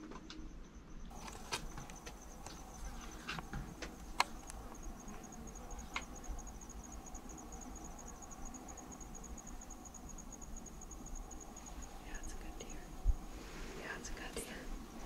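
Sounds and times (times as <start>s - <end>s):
insect chirping trill: 0.0s - 15.0s
faint clicks: 1.2s - 5.2s.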